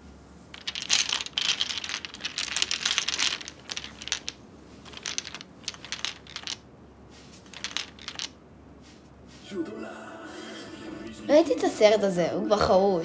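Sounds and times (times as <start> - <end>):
glass bottles clinking and rattling: 0.6 - 6.6, 7.5 - 8.4.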